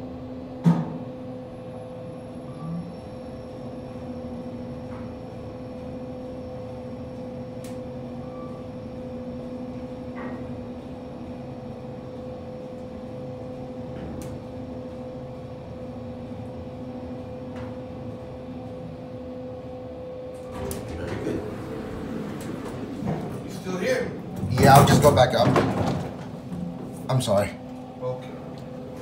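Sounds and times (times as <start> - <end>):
elevator car humming: 0.0 - 29.0.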